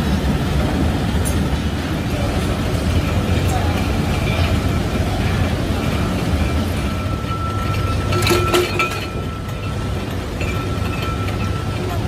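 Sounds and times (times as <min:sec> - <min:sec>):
machinery low rumble: 0:00.0 - 0:12.0
metallic clanks: 0:02.9 - 0:12.0.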